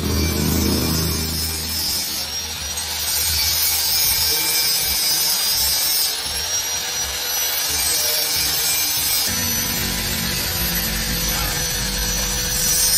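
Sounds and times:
faint high whine: 0.0 - 2.9.

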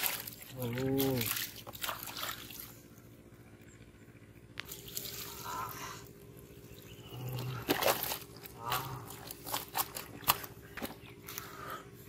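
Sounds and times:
fish flapping in water: 7.4 - 11.1.

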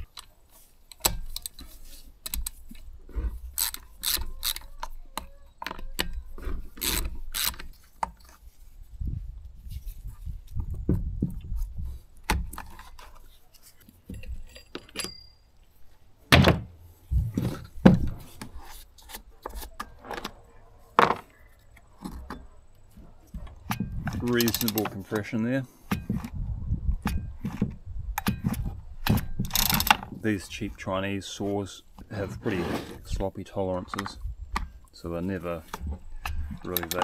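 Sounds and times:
metal chain clinking and rattling: 14.2 - 15.5.

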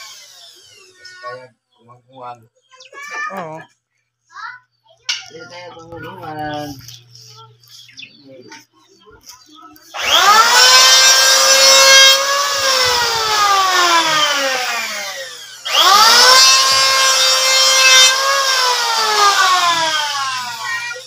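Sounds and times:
electric planer whining: 0.0 - 1.1, 9.9 - 21.0.

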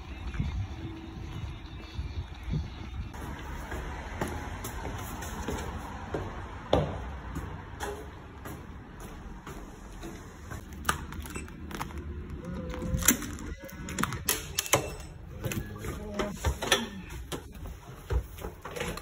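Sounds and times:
footsteps climbing stairs: 3.1 - 10.8, 15.4 - 19.0.

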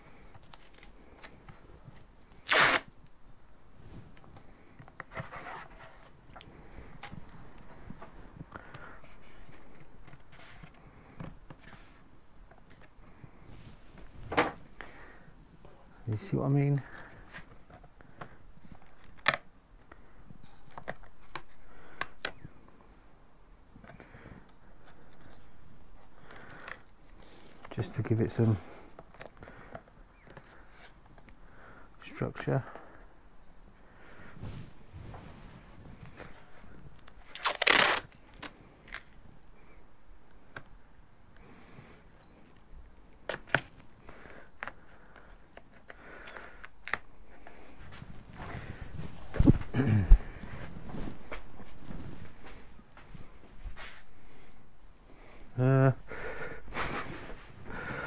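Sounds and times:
rustling of tape and card: 0.2 - 3.1, 4.0 - 14.9, 16.8 - 22.8, 23.8 - 31.4, 35.5 - 39.4, 42.5 - 54.1
tape snaps and ticks: 42.6 - 47.1.

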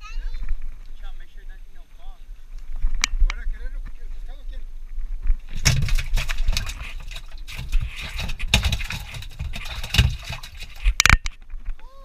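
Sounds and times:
water sloshing and splashing: 5.4 - 11.3.

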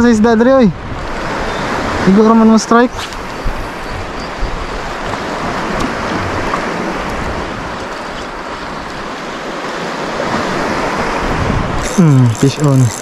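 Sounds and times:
open water: 0.0 - 13.0
wind on microphone: 0.3 - 13.0.

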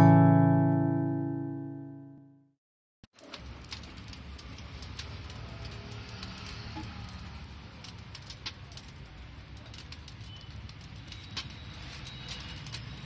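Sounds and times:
wood fire crackling and popping: 3.1 - 13.0.

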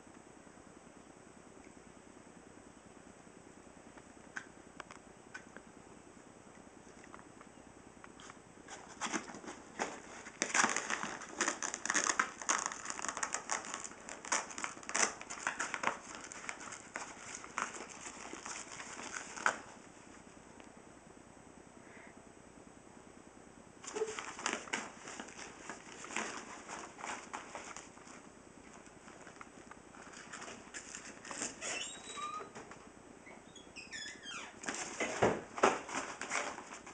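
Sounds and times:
fabric bag rustling and crinkling: 8.8 - 19.8, 23.8 - 31.6
short high squeaks: 31.6 - 32.6, 33.2 - 34.6.

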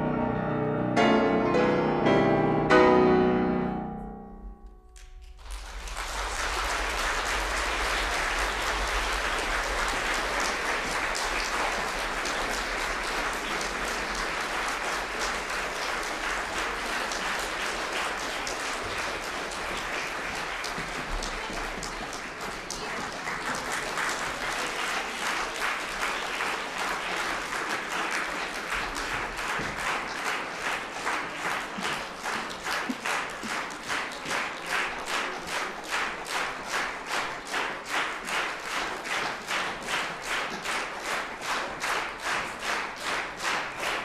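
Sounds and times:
pianos playing chords: 0.0 - 5.4
audience applause: 5.0 - 44.0.

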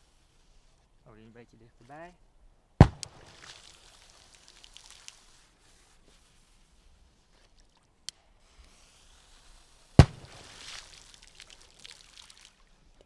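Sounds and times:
firecracker bang: 2.8 - 3.4, 10.0 - 10.7
water splashing: 2.8 - 8.1, 9.2 - 13.0.

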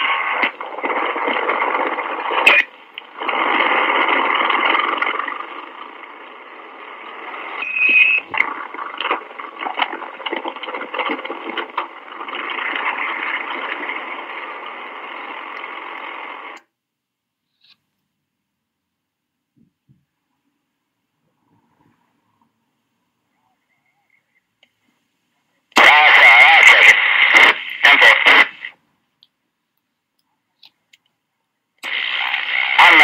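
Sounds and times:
radio clicks: 0.0 - 5.8, 7.2 - 16.7, 25.7 - 29.4
radio static and hiss: 0.0 - 16.7, 25.6 - 28.8, 31.8 - 33.0
short whistle tone: 7.6 - 8.3.

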